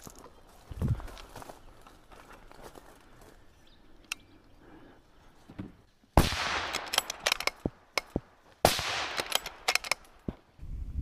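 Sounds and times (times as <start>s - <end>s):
rifle shots with echo: 6.2s - 10.1s
rifle bolt clicking: 6.6s - 8.1s, 9.1s - 10.2s.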